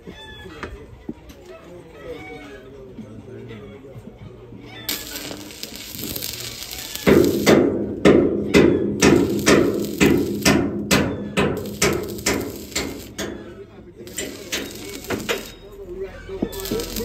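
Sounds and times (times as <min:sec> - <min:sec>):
steady hiss: 0:04.9 - 0:07.7, 0:09.0 - 0:10.7, 0:11.6 - 0:13.4, 0:14.1 - 0:15.6, 0:16.6 - 0:17.0.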